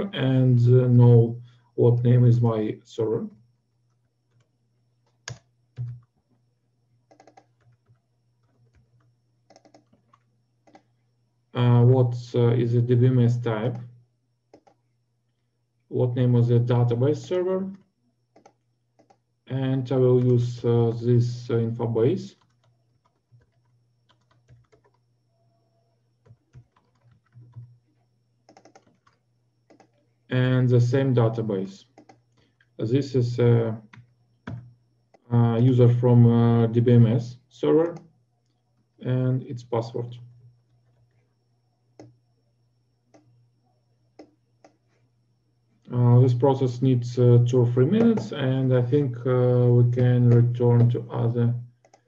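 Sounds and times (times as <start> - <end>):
faint low hum: 0.0 - 52.0
computer keyboard typing: 4.0 - 6.1, 7.1 - 10.8, 14.5 - 14.8, 17.7 - 19.2, 22.3 - 25.0, 26.2 - 27.8, 28.4 - 30.0, 31.8 - 32.2, 33.8 - 35.2, 47.9 - 48.4, 51.8 - 52.0.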